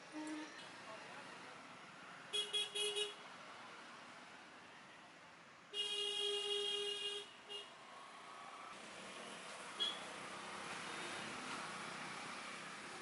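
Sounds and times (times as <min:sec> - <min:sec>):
vehicle horn honking: 0:00.1 - 0:00.6.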